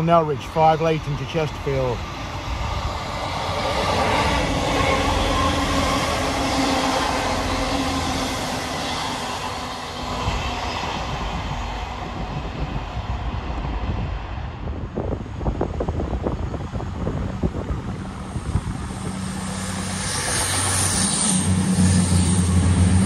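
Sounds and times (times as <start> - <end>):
diesel train engine drone: 0.0 - 23.0
rail rumble: 0.0 - 23.0.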